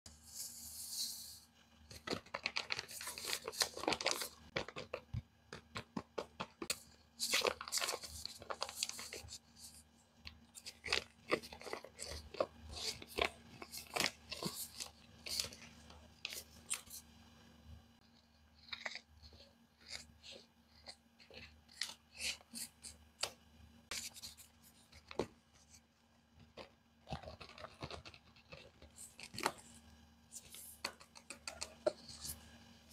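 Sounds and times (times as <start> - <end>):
paper crinkling and tearing: 1.9 - 5.0, 6.6 - 9.8, 10.5 - 17.0, 26.6 - 29.6.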